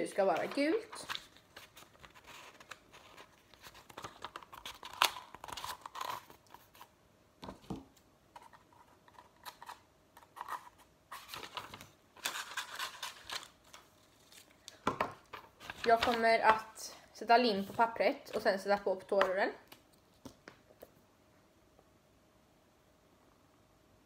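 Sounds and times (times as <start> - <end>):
paper rustling: 0.2 - 6.9, 10.4 - 16.5.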